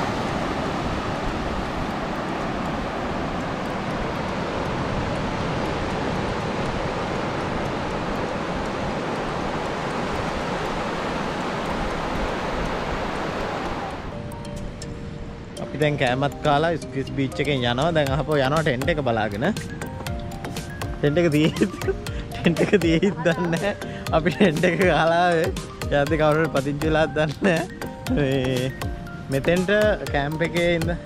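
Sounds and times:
small waves breaking on beach: 0.0s - 14.2s.

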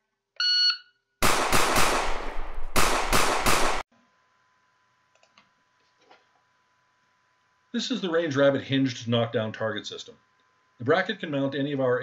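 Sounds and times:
rapid pistol shots: 1.2s - 3.8s.

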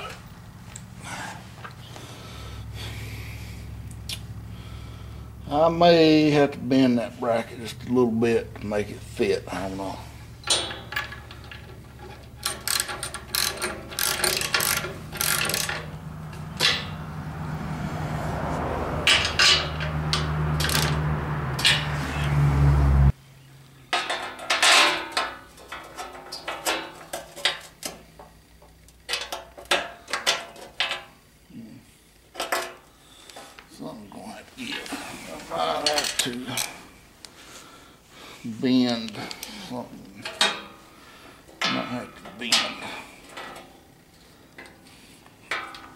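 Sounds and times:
steady low hum: 0.0s - 20.9s
wrench and bolts clanking on metal: 10.4s - 17.1s, 19.0s - 21.9s, 23.9s - 31.2s, 32.4s - 32.8s, 35.7s - 36.8s, 40.2s - 40.8s, 41.5s - 43.9s, 44.6s - 45.9s.

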